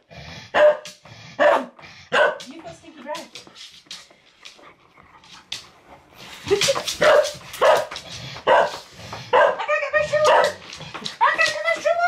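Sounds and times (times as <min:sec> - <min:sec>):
dog barking: 0:00.5 - 0:02.5, 0:07.0 - 0:10.6.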